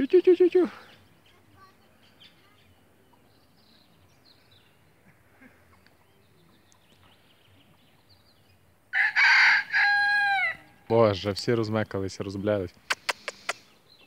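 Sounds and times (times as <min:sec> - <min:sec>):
faint bird chirps: 0:00.0 - 0:08.8
rooster crowing: 0:08.9 - 0:10.7.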